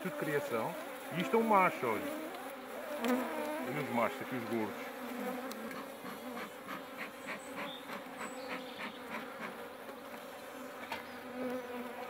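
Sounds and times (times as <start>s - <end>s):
honeybees buzzing: 0.0s - 12.0s
bellows smoker hissing: 2.9s - 4.9s.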